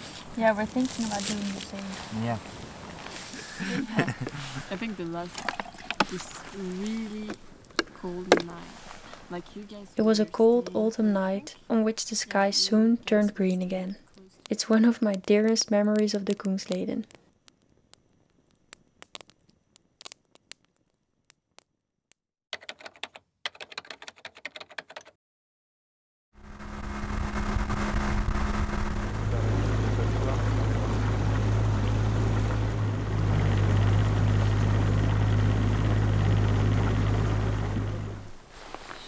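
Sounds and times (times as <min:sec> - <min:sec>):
rushing water: 0:00.0 - 0:07.7, 0:27.6 - 0:39.0
motorboat engine running: 0:00.0 - 0:10.7, 0:26.4 - 0:38.4
campfire crackling: 0:00.0 - 0:21.7, 0:26.4 - 0:39.0.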